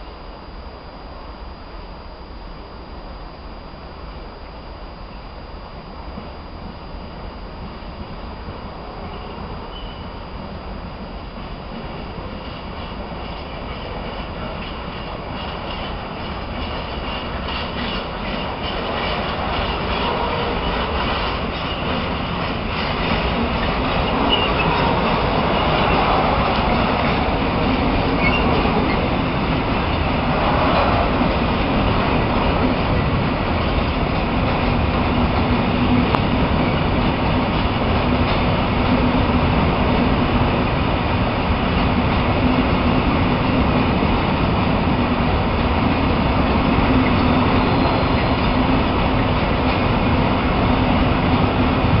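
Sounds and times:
freight wagons rolling on rails: 12.3s - 39.6s.

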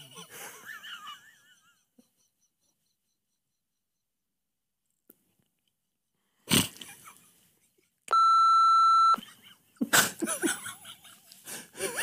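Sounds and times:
man laughing breathily: 0.0s - 3.6s, 9.3s - 12.0s
electronic censor bleep: 8.1s - 9.2s.

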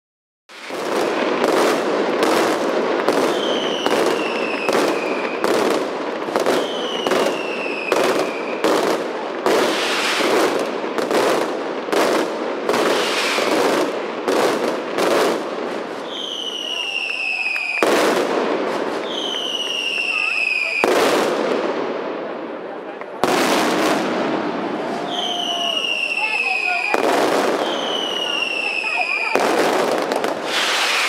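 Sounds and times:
loud firecracker bangs: 0.5s - 22.4s, 23.1s - 31.0s
firecrackers crackling: 0.5s - 31.0s
descending firework whistle: 3.1s - 5.6s, 6.4s - 8.7s, 12.9s - 13.7s, 16.0s - 21.1s, 24.2s - 31.0s.

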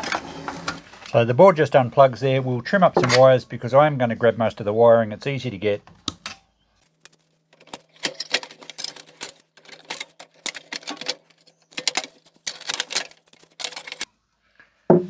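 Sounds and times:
plastic parts being handled: 6.1s - 14.1s.

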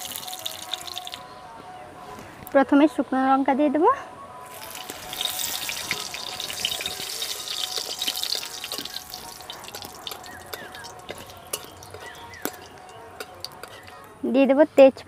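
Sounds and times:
chillies sizzling in hot oil: 0.0s - 1.2s, 4.5s - 14.1s
metal spatula stirring in wok: 4.6s - 13.9s.

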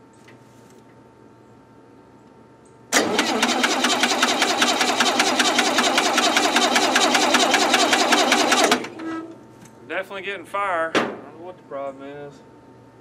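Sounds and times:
engine cranking by starter: 2.9s - 9.0s.

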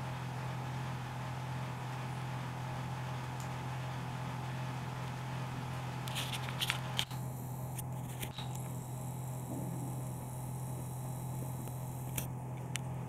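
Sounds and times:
steady low hum: 0.0s - 13.0s
short clicks and rustles: 6.1s - 8.8s.

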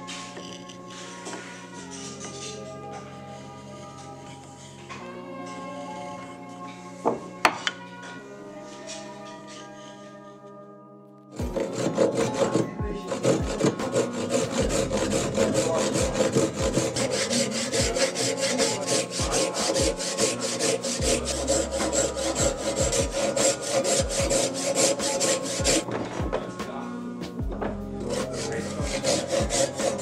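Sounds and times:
hand saw rasping through wood: 11.4s - 26.4s, 28.0s - 30.0s.

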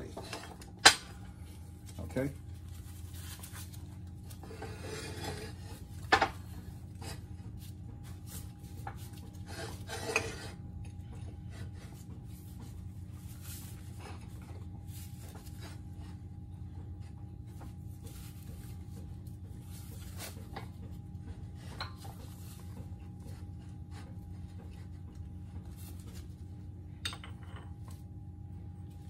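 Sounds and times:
metal parts scraping on steel: 9.5s - 10.6s.

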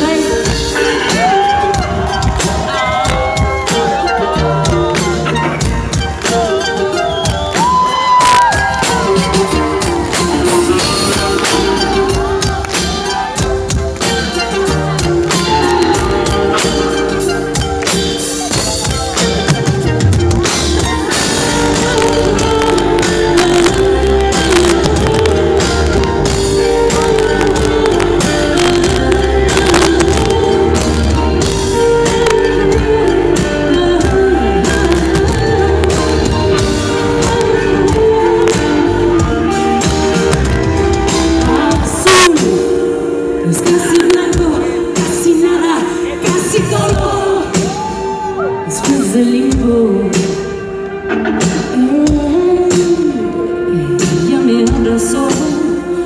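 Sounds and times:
woman singing into microphone: 0.0s - 5.2s, 20.8s - 39.8s, 41.2s - 50.7s, 51.4s - 56.0s
live band music: 0.0s - 56.0s.

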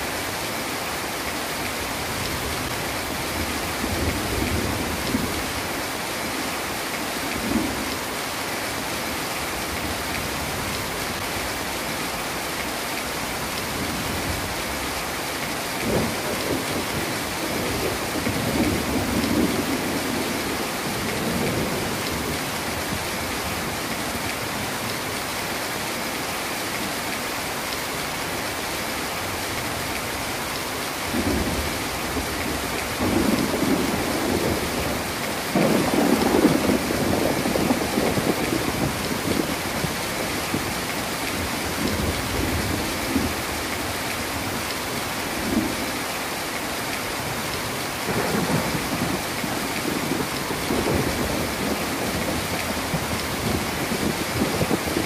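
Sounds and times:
heavy rain: 0.0s - 55.0s
thunder rumbling: 31.1s - 43.4s, 48.0s - 55.0s.

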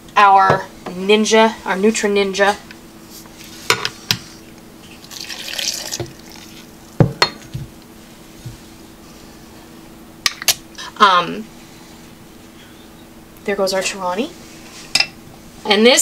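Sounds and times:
liquid pouring and splashing: 5.0s - 6.7s
glassware clinking and knocking: 7.0s - 7.6s.

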